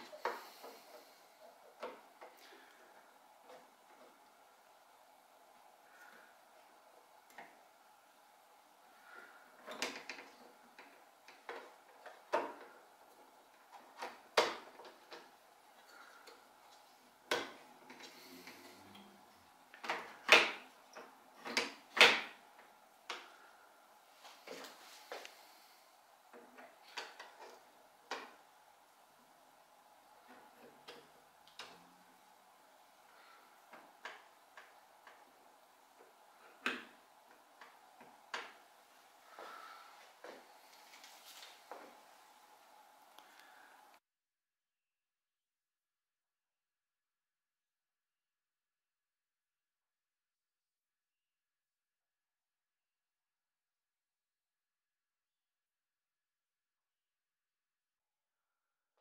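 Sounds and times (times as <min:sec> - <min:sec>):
plastic parts clicking and knocking: 0:09.6 - 0:16.4, 0:17.2 - 0:18.1, 0:19.7 - 0:23.4.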